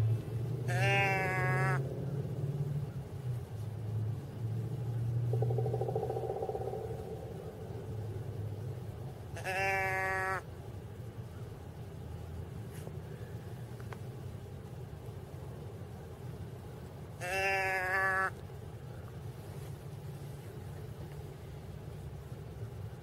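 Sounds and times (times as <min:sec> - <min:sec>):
deer bleat call: 0:00.6 - 0:01.8, 0:09.3 - 0:10.5, 0:17.2 - 0:18.4.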